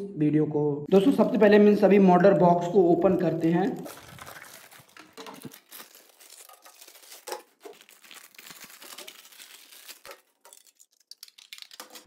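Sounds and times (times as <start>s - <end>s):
plastic film crinkling and tearing: 3.1s - 12.0s.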